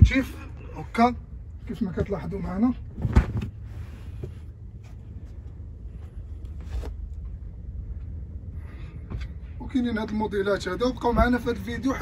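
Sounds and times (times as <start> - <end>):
low steady hum: 0.0 - 12.0
carpet rustling: 1.8 - 7.6.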